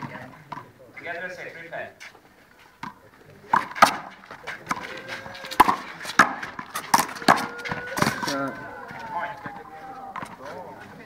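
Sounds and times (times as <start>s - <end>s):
ball hitting concrete wall: 2.8s - 10.4s.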